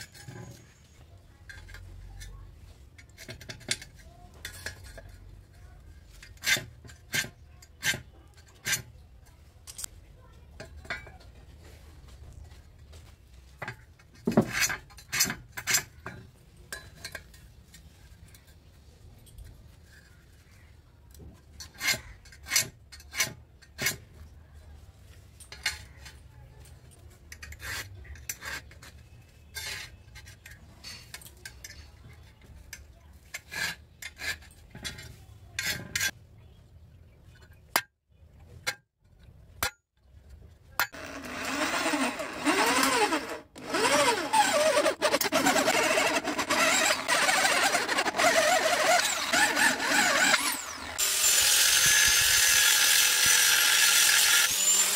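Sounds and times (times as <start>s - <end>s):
power drill boring into steel: 41.0s - 54.9s.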